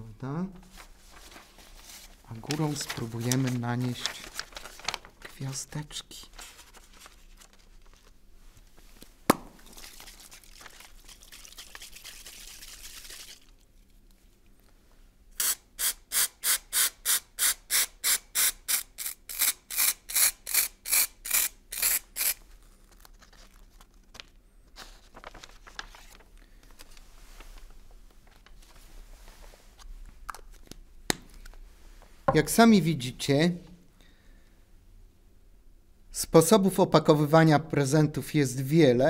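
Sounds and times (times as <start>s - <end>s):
paper rubbing and handling: 0.6s - 8.2s, 22.2s - 29.9s.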